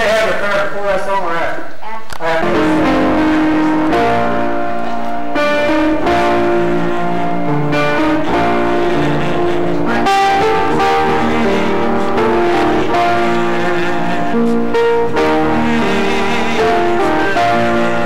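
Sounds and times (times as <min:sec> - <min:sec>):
keyboard playing slow chords: 0:02.2 - 0:18.0.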